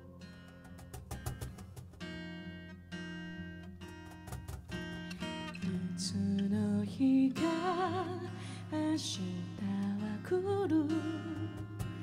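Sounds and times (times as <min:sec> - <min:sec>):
acoustic guitar: 0:00.0 - 0:12.0
wordless singing with vibrato: 0:05.6 - 0:11.8.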